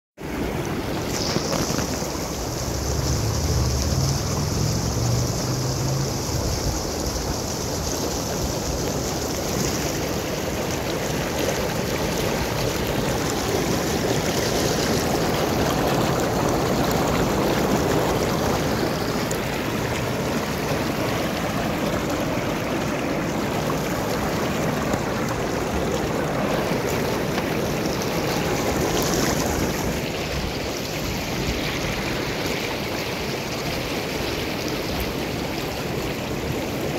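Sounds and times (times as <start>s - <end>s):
water churning and bubbling: 0.2s - 36.9s
low rumble: 2.2s - 7.3s.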